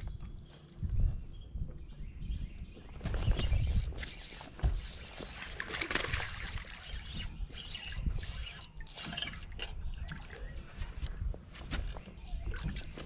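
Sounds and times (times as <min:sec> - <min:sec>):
wind rumbling on microphone: 0:00.0 - 0:13.0
water lapping against boat hull: 0:02.8 - 0:13.0.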